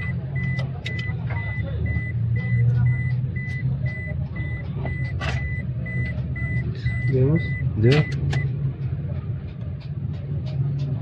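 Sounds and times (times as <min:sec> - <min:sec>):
high electronic beeps: 0:00.0 - 0:08.5
low mechanical hum: 0:00.0 - 0:11.0
sharp clicks from handling parts: 0:00.4 - 0:01.6.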